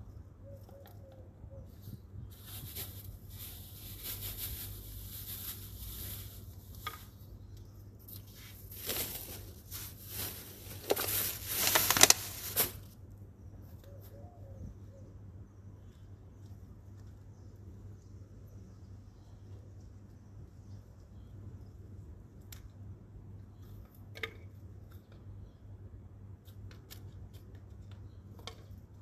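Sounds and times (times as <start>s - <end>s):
plastic bag crinkling: 2.5s - 6.7s, 8.6s - 12.9s.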